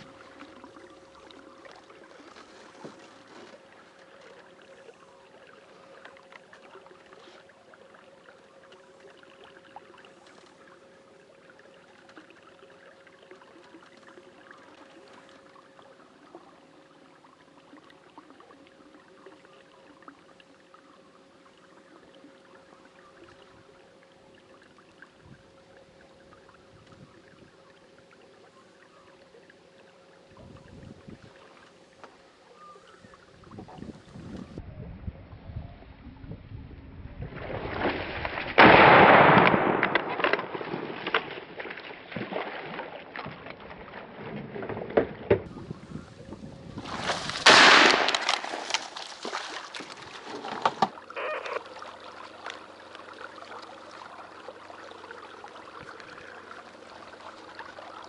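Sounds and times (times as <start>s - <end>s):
paddle splashing and dripping: 0.0s - 30.6s, 37.6s - 58.0s
thin steady hum: 0.0s - 37.4s.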